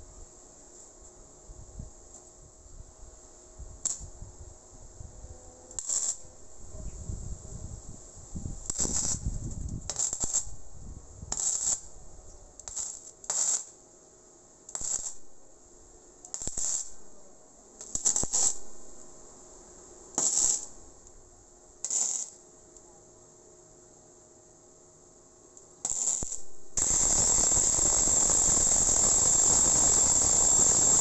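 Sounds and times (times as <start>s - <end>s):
welder bursts on steel: 3.8s - 4.1s, 5.8s - 6.3s, 8.6s - 10.7s, 11.3s - 11.9s, 12.6s - 13.8s, 14.7s - 15.4s, 16.3s - 17.0s, 17.8s - 18.7s, 20.1s - 20.8s, 21.8s - 22.4s, 25.8s - 31.0s.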